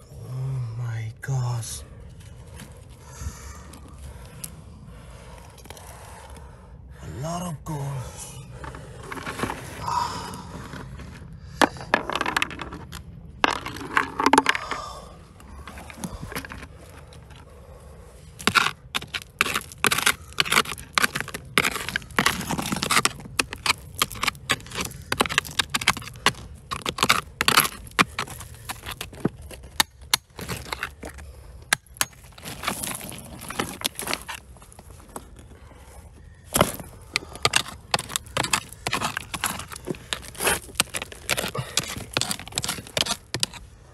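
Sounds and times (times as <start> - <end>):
digging in rocky soil: 0.0 - 43.9
stones clicking together: 11.6 - 15.1, 18.4 - 34.4, 36.5 - 43.6.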